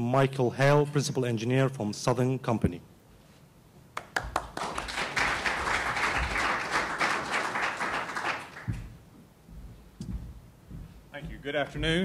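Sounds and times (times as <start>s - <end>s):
audience applauding: 4.0s - 8.9s.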